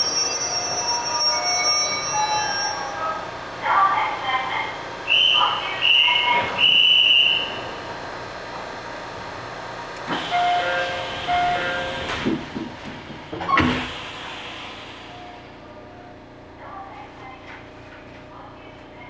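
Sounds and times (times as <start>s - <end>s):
train doors thudding shut: 10.0s - 14.2s.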